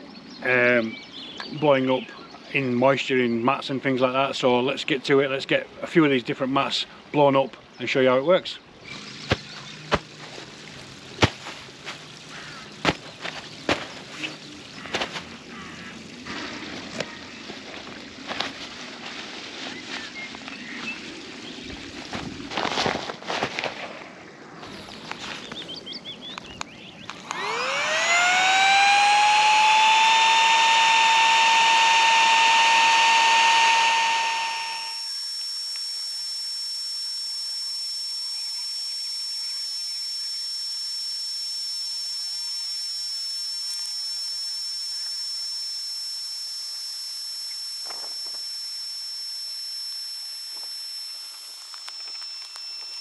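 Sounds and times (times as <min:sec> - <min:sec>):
air pump motor whining: 0:08.8 - 0:23.8, 0:24.6 - 0:25.7, 0:27.0 - 0:53.0
airy hiss with high whine: 0:29.8 - 0:53.0.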